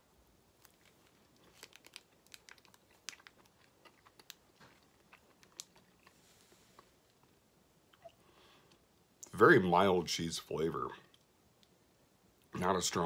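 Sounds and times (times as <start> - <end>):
man chewing cheese: 0.5 - 8.8.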